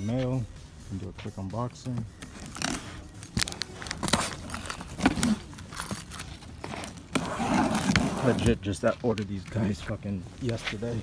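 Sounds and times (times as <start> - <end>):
keyring jangling: 2.5 - 6.8.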